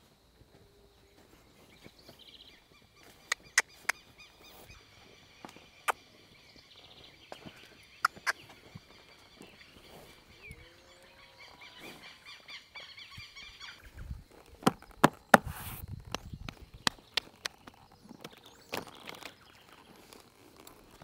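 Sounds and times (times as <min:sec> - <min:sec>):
birds calling: 0:00.9 - 0:21.0
sharp clicks: 0:08.0 - 0:08.5.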